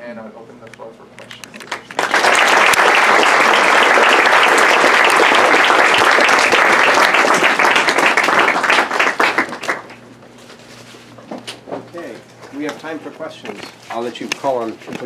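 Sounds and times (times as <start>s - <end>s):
audience applauding: 1.6s - 10.0s.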